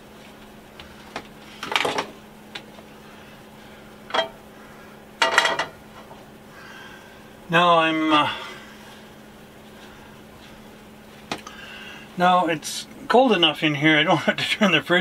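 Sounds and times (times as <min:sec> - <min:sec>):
faint steady hum: 0:00.0 - 0:15.0
dishes and utensils clinking: 0:05.2 - 0:05.8.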